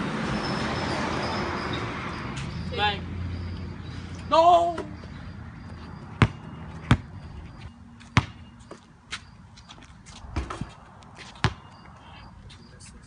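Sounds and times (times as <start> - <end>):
basketball bouncing on concrete: 5.6 - 11.9.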